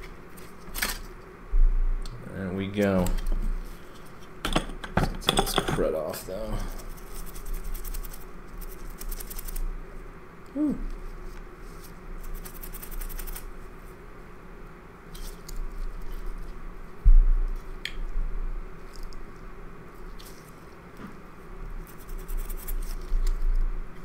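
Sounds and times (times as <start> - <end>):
scrubbing on a circuit chip: 6.8 - 9.6, 12.2 - 13.5, 21.8 - 23.4
low thump: 17.0 - 17.4.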